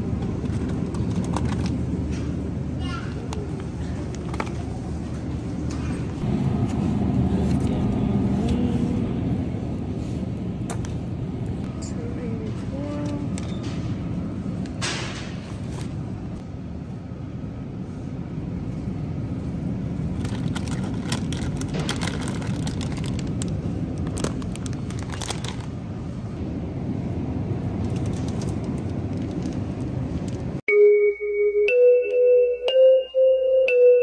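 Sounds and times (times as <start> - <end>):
store background hum: 0.0 - 34.0
plastic packaging crinkling: 20.2 - 25.8.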